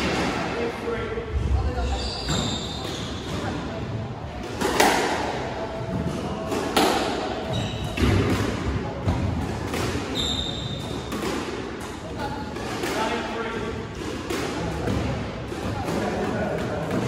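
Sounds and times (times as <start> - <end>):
squash ball hitting walls: 4.4 - 11.6
racket striking ball: 4.6 - 5.2
shoes squeaking on wooden floor: 7.5 - 8.0, 10.1 - 10.8.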